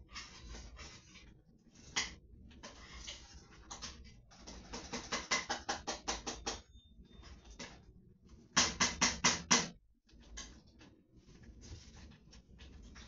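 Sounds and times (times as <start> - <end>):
utensil strokes in a pot: 0.0 - 3.8.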